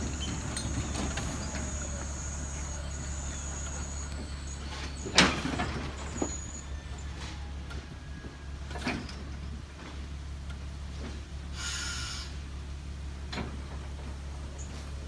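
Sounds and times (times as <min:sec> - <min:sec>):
train wheels rolling on rails: 0:00.0 - 0:15.0.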